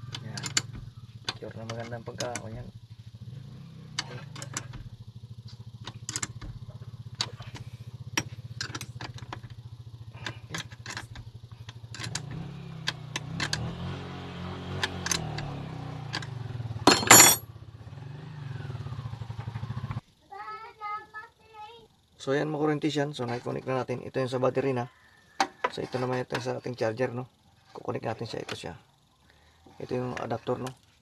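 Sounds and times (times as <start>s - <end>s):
low engine hum: 0.0s - 20.0s
metal clatter: 16.2s - 17.4s
wrench clinking on battery clamp: 16.9s - 17.4s.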